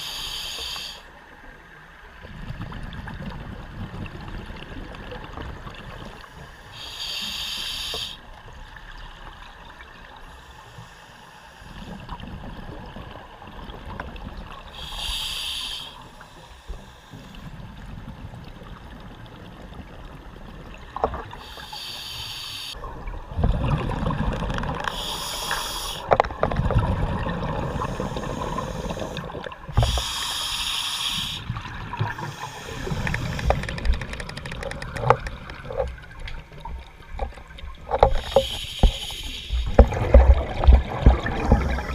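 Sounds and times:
exhaled bubbles underwater: 0:22.8 - 0:25.1, 0:26.0 - 0:30.1, 0:39.6 - 0:41.9
low underwater rumble: 0:39.6 - 0:41.9.

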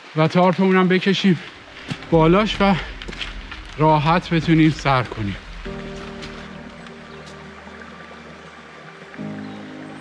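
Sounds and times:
low drone: 0:01.4 - 0:09.4
slow held chords: 0:01.5 - 0:10.0.

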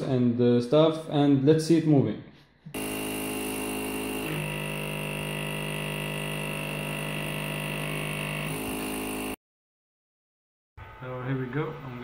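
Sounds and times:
stepper motors whining: 0:02.8 - 0:09.4.

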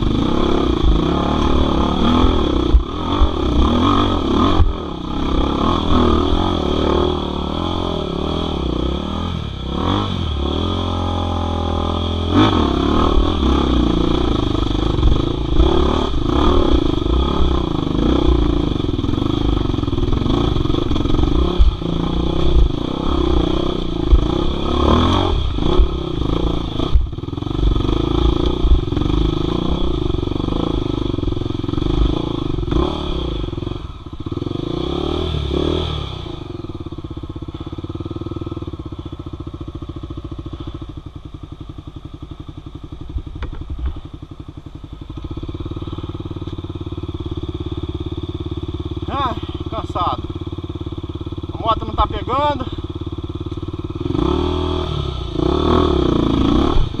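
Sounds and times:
dirt bike engine revving: 0:00.0 - 0:57.0.

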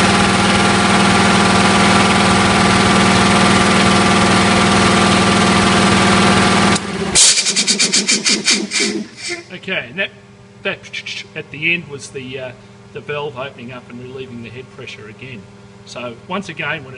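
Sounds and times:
air compressor running: 0:00.0 - 0:09.6, 0:12.5 - 0:13.0
relief valve hissing puffs: 0:07.2 - 0:09.5.

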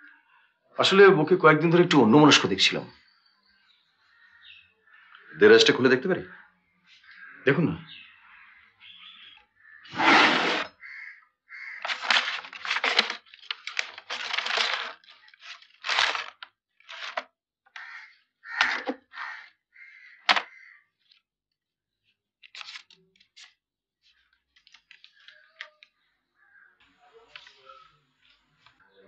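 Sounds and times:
papers rustling in a drawer: 0:11.8 - 0:17.2.

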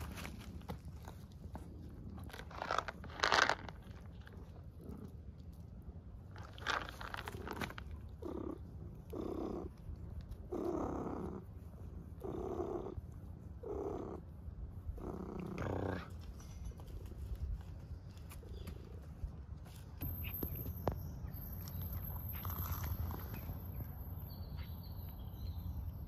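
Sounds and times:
handling rustle: 0:00.0 - 0:04.6, 0:06.3 - 0:08.2
cat purring: 0:06.4 - 0:16.1.

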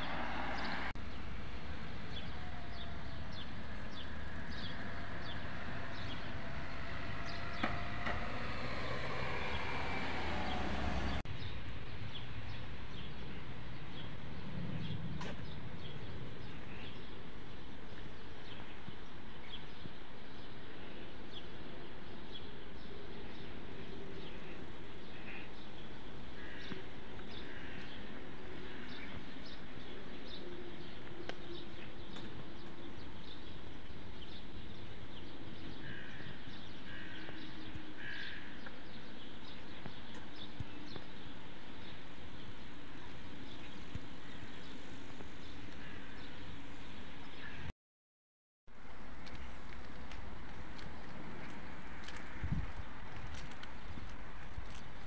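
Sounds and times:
street hum: 0:00.0 - 0:47.7, 0:48.7 - 0:55.0
small birds chirping: 0:02.0 - 0:08.4, 0:09.3 - 0:47.7
footsteps on paving: 0:48.8 - 0:55.0.

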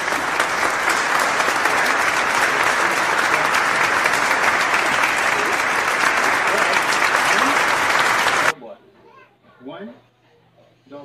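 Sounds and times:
crowd applause: 0:00.0 - 0:08.6.

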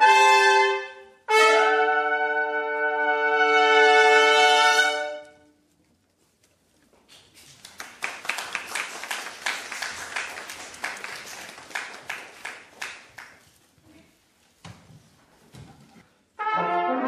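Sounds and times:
small audience applauding: 0:07.2 - 0:13.6.

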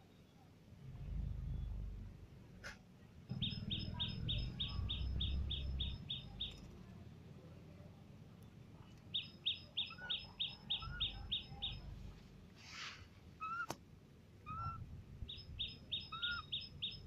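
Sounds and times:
low rumble: 0:00.8 - 0:02.6.

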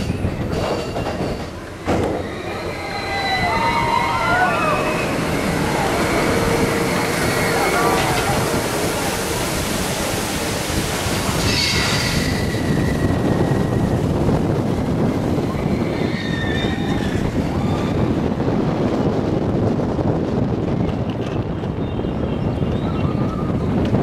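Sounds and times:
roller coaster wheels rumbling: 0:00.0 - 0:24.0
wind buffeting microphone: 0:00.0 - 0:24.0
high squeals: 0:02.1 - 0:08.5, 0:11.4 - 0:14.0, 0:15.5 - 0:18.1.

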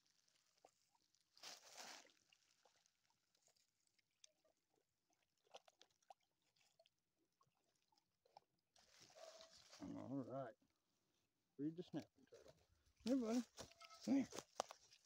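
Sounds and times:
faint ticks and patters: 0:11.8 - 0:15.0.

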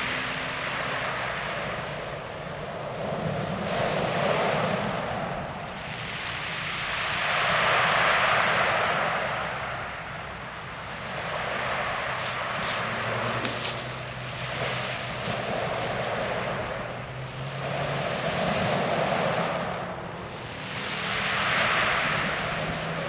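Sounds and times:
waves washing up shingle beach: 0:20.3 - 0:23.0.

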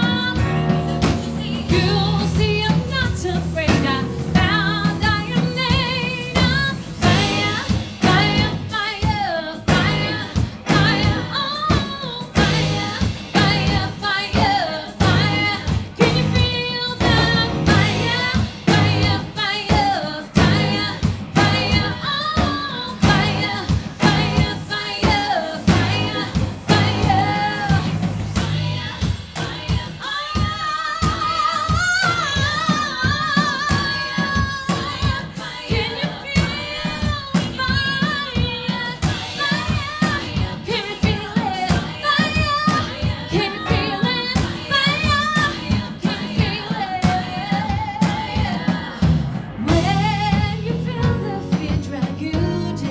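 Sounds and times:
electric bass: 0:00.0 - 0:08.7, 0:09.7 - 0:11.3, 0:12.4 - 0:13.9, 0:15.0 - 0:19.4, 0:20.4 - 0:22.0, 0:23.0 - 0:24.7, 0:25.7 - 0:29.0, 0:49.0 - 0:52.9
drum kit: 0:00.0 - 0:52.9
woman singing: 0:00.0 - 0:52.9.

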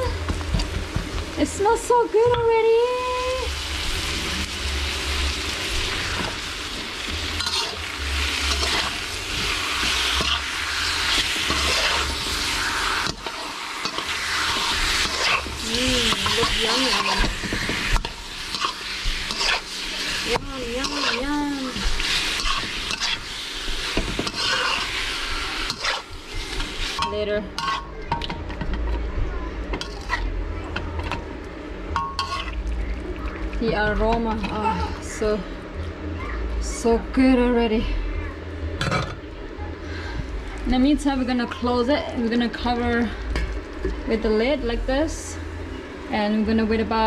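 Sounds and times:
fish sizzling in hot oil: 0:01.7 - 0:27.8
metal spatula scraping a wok: 0:07.2 - 0:28.0, 0:29.8 - 0:30.3, 0:32.0 - 0:32.6
spatula scraping and knocking pan: 0:13.8 - 0:23.3, 0:23.9 - 0:25.0.

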